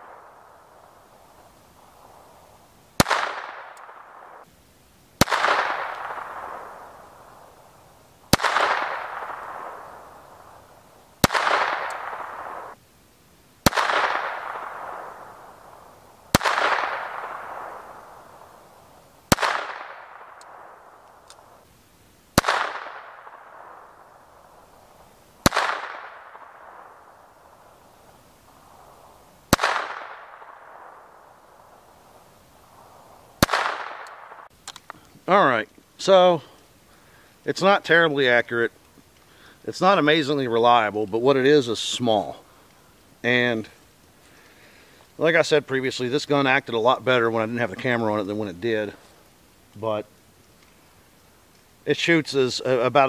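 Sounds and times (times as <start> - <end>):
pistol shots with echo: 3.0 - 4.5, 5.2 - 7.5, 8.3 - 10.6, 11.2 - 12.8, 13.6 - 18.7, 19.3 - 21.5, 22.4 - 24.7, 25.4 - 27.7, 29.5 - 31.8, 33.4 - 34.5.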